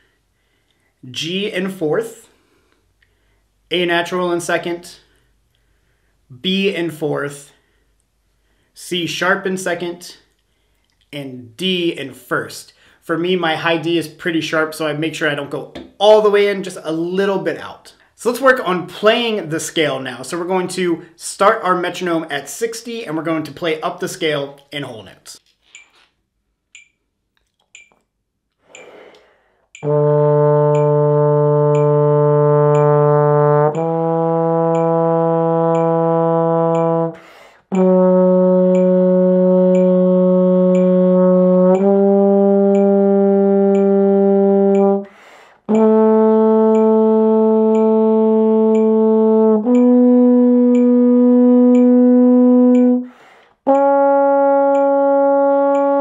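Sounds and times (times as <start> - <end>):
metronome ticking: 13.2 - 25.1, 25.7 - 26.0, 26.7 - 28.0, 28.7 - 56.0
trombone playing a scale: 29.8 - 45.1, 45.7 - 56.0.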